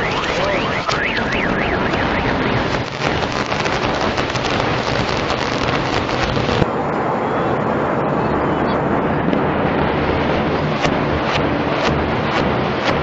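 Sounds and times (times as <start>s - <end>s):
warbling alarm: 0.0s - 6.6s.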